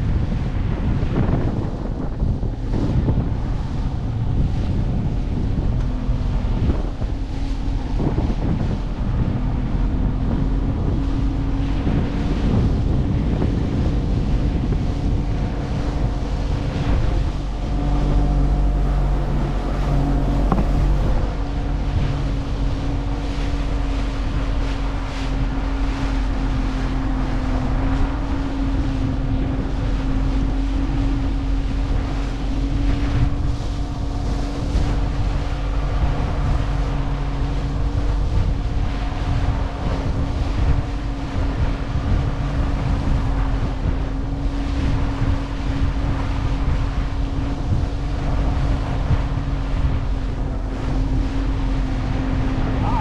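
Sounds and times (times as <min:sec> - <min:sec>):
outboard motor running: 0:00.0 - 0:53.0
water rushing past hull: 0:00.0 - 0:53.0
wind buffeting microphone: 0:00.0 - 0:53.0.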